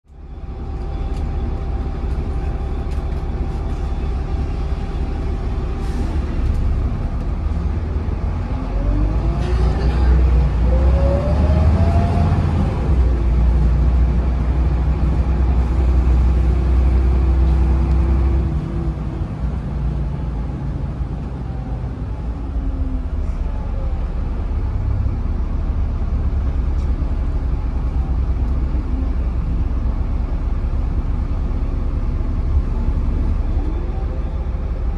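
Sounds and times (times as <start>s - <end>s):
bus diesel engine: 0.0s - 34.9s.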